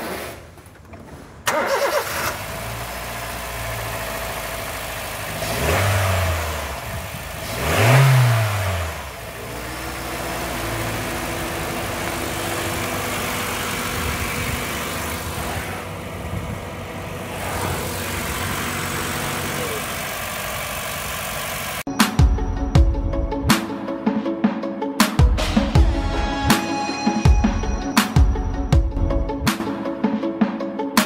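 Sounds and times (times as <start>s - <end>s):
car engine idling and revving: 0.0s - 23.3s.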